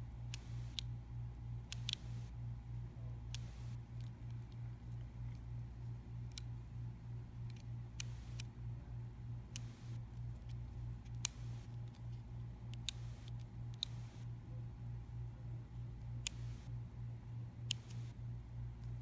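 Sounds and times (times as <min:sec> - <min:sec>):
flashlight switch clicks: 0:17.7 - 0:18.0.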